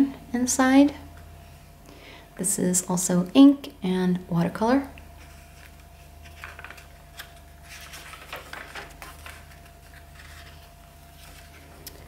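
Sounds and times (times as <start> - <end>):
steady low hum: 0.0 - 12.0
paper pages rustling: 5.2 - 11.8.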